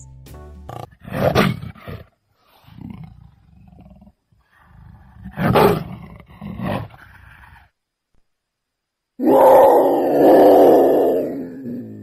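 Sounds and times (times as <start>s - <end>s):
leopard roaring calls: 9.2s - 12.0s.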